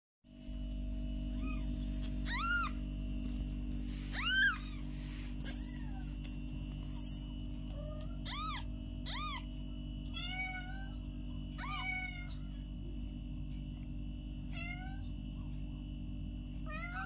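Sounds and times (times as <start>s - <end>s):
steady low hum: 0.3s - 17.0s.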